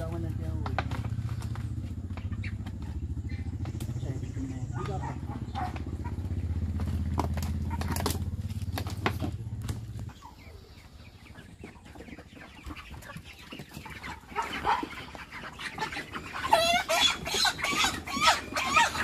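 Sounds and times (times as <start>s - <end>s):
chickens squawking: 0.0s - 19.0s
low engine hum: 0.0s - 19.0s.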